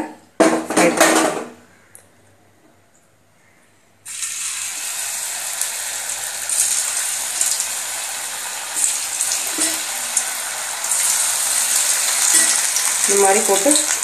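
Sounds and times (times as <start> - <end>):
food deep-frying in hot oil: 4.1 - 14.0.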